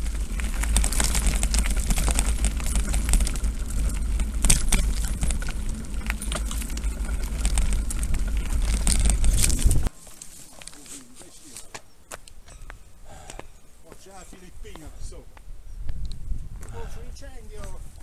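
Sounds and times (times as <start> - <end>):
bike tyres rumbling on gravel: 0.0 - 11.6
bike clicking and rattling: 0.0 - 12.8.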